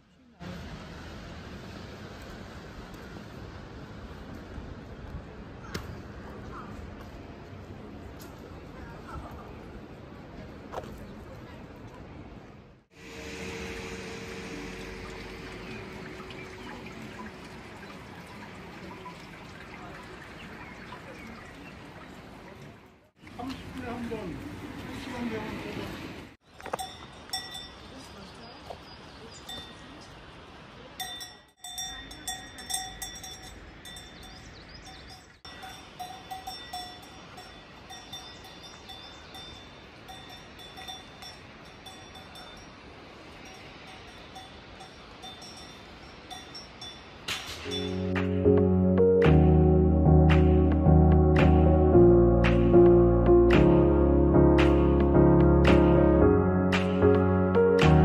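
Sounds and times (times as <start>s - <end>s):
water running and splashing: 13.0s - 26.3s
water dripping and trickling: 14.2s - 25.4s
cowbells clanking: 26.6s - 28.0s, 31.0s - 42.8s, 43.5s - 48.0s.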